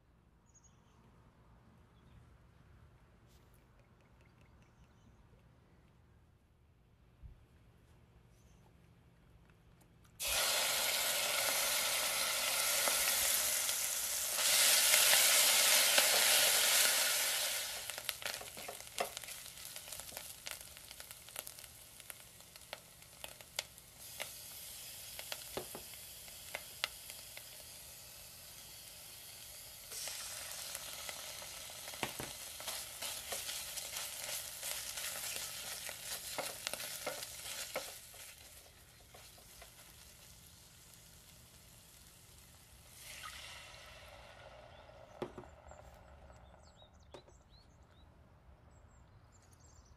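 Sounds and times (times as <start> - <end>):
onion sizzling in hot oil: 10.2 - 45.8.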